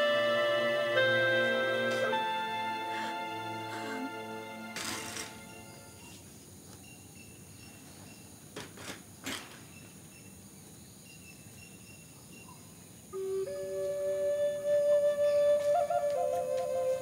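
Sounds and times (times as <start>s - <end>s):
music: 0.0s - 6.0s, 13.3s - 17.0s.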